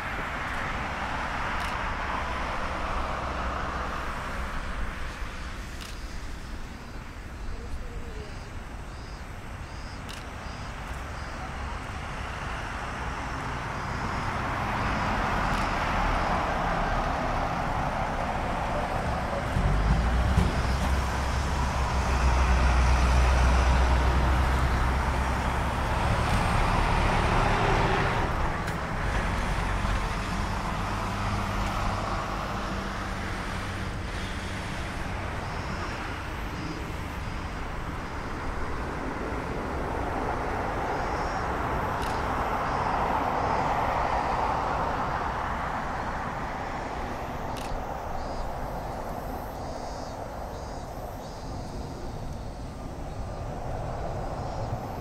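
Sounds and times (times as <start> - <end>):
jet engines rumble and hiss: 0.0 - 55.0.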